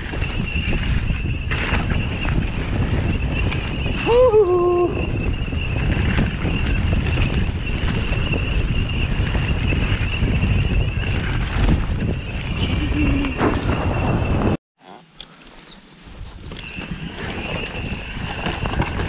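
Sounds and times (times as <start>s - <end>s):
wind rushing over microphone: 0.0s - 14.6s, 15.8s - 19.0s
tyres rolling over dirt: 16.6s - 19.0s.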